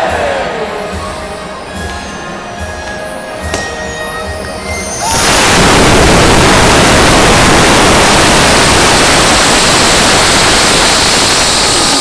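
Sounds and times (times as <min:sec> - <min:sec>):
air rushing out of balloons: 0:05.0 - 0:12.0.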